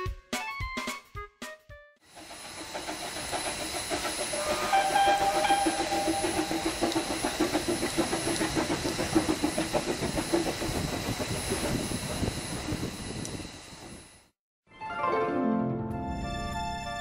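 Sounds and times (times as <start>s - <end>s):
steam locomotive chuffing: 2.0s - 14.3s
steam hissing: 2.0s - 14.4s
wheels clattering on rails: 2.1s - 14.0s.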